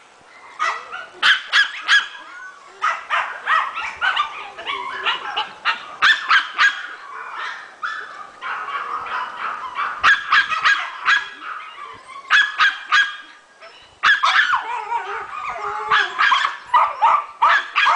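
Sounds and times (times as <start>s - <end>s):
puppy whining: 4.3s - 5.4s, 14.5s - 17.2s.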